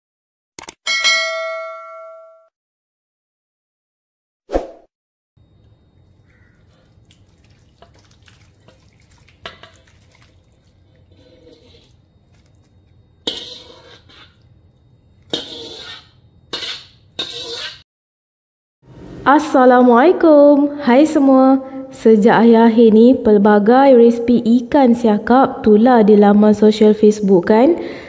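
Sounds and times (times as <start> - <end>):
faint low hum: 5.4 - 15.4
water dripping: 5.6 - 13.0
water splashing: 6.0 - 12.9.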